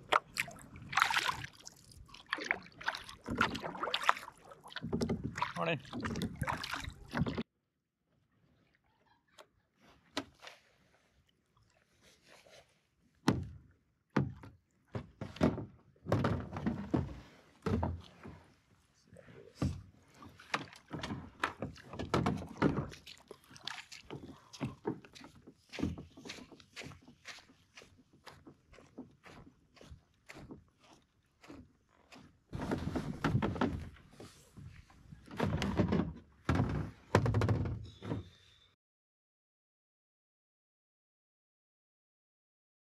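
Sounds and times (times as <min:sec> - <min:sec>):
thumps and knocks on kayak hull: 0:04.7 - 0:07.4, 0:13.2 - 0:18.3, 0:19.6 - 0:23.1, 0:32.6 - 0:38.3
hollow knocks on kayak hull: 0:35.3 - 0:37.8.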